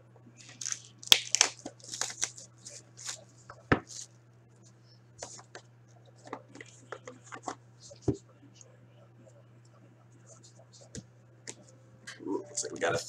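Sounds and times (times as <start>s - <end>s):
plastic shrink wrap crackling: 0.4s - 3.2s.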